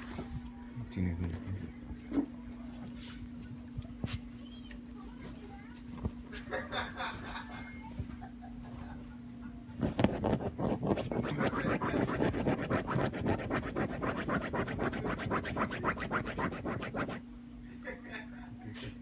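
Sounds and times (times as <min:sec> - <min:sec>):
scratching on fabric blanket: 0:09.8 - 0:17.2.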